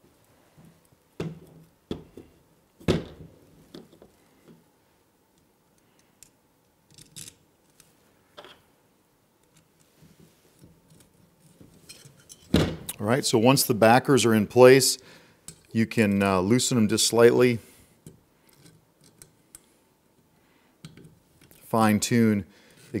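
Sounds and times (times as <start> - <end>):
metal parts clicking and knocking: 6.9 - 8.6.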